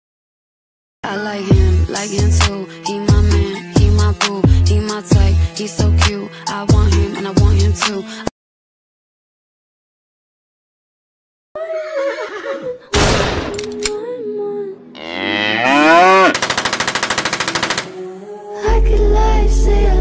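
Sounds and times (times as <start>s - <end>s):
sharp crash: 13.0s - 13.6s.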